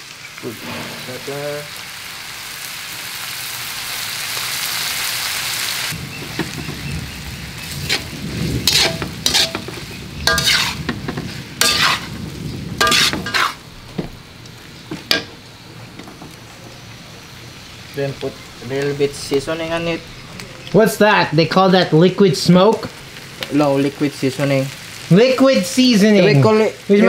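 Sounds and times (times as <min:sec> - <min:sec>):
pork sizzling in a wok: 0:00.0 - 0:27.0
spatula scraping a metal pan: 0:07.9 - 0:12.1, 0:12.8 - 0:13.6.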